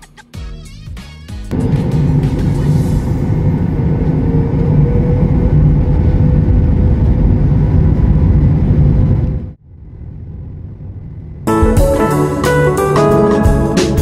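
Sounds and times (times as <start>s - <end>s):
jet engine rumble: 1.5s - 11.7s
steady cabin hum: 1.5s - 14.0s.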